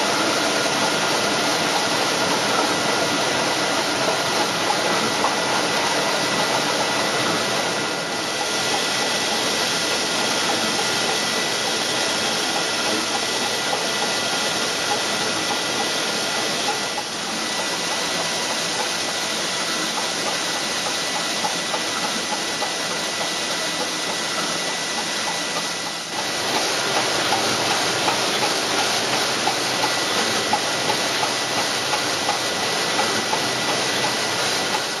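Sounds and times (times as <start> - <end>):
printing machine running: 0.0 - 35.0
hiss: 7.8 - 35.0.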